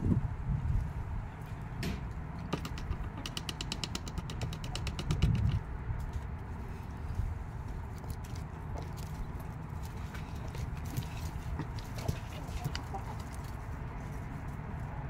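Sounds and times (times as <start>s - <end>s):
chicken pecking taps: 1.8s - 5.6s, 10.8s - 13.5s.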